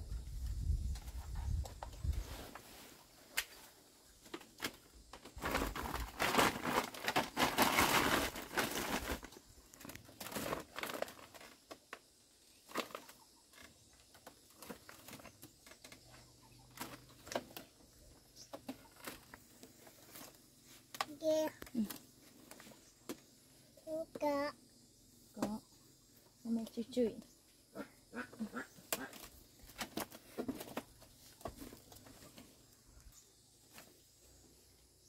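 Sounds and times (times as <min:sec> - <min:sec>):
beans rustling: 0:04.4 - 0:11.9.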